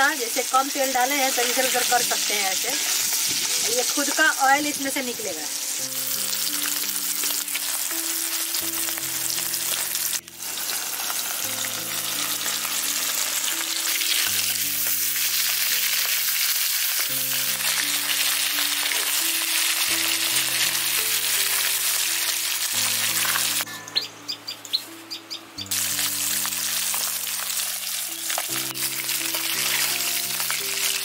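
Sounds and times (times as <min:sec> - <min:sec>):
fish sizzling in hot oil: 0:00.0 - 0:23.7, 0:25.7 - 0:31.0
soft background music: 0:00.0 - 0:31.0.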